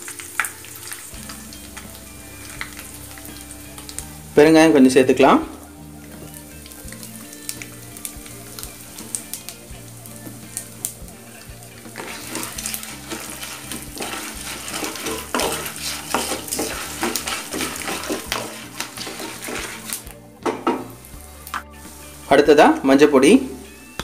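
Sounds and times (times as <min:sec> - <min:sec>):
food frying in hot oil: 0:00.0 - 0:04.4, 0:05.6 - 0:22.4
wooden spatula scraping pan: 0:11.8 - 0:21.7.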